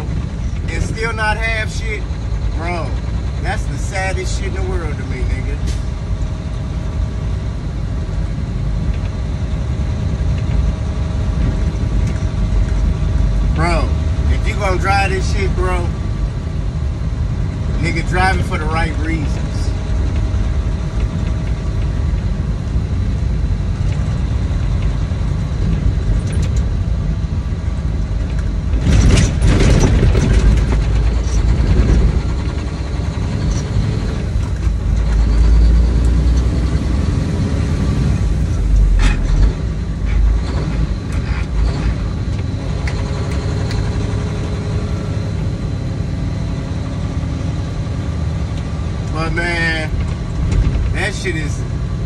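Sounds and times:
truck engine and road rumble: 0:00.0 - 0:52.0.

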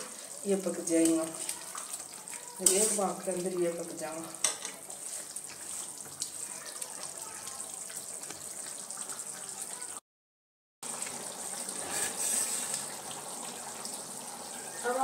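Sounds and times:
curry bubbling in pan: 0:00.0 - 0:10.0, 0:10.8 - 0:15.0.

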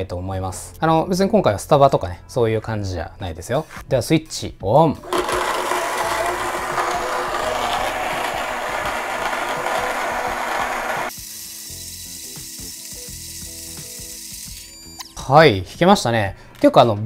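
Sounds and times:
coffee grinder grinding beans: 0:05.0 - 0:14.8.

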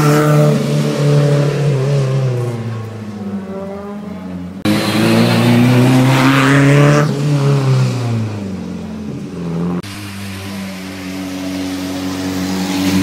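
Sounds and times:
rally car engine revving past: 0:00.0 - 0:08.6
tyre hiss on wet road: 0:09.8 - 0:13.0.

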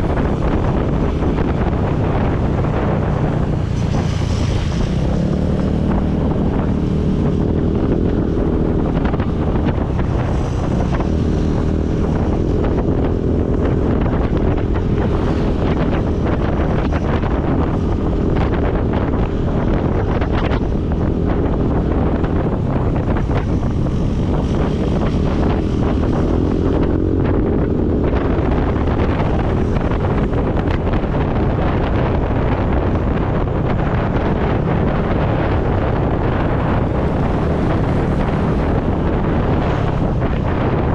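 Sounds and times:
motorcycle engine: 0:00.0 - 0:40.9
tyres on road: 0:00.0 - 0:40.9
wind on microphone: 0:00.0 - 0:40.9.

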